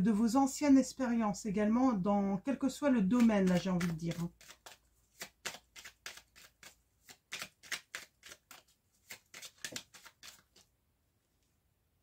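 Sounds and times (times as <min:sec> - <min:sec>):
cards being shuffled: 0:03.1 - 0:10.7.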